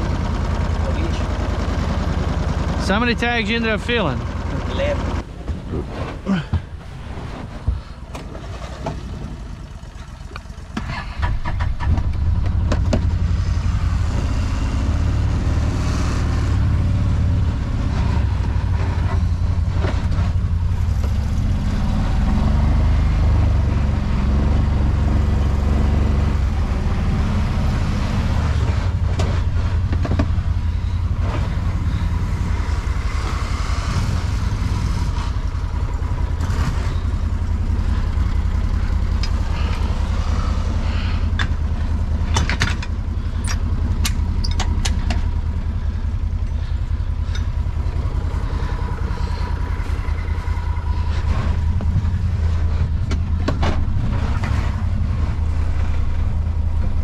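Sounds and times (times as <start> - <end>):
vehicle engine rumbling: 0.0 - 57.0
knocks and rattles: 4.0 - 13.3, 28.6 - 33.6, 41.3 - 45.5.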